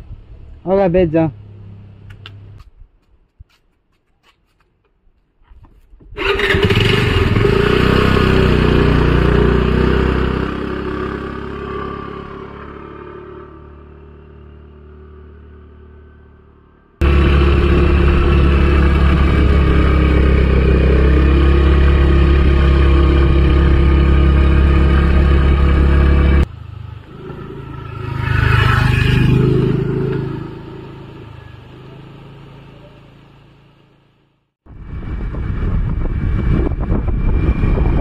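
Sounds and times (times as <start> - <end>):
scooter motor running: 6.2 - 14.2, 17.0 - 33.6
passing vehicle engine: 6.2 - 38.0
wind rumble on microphone: 34.7 - 38.0.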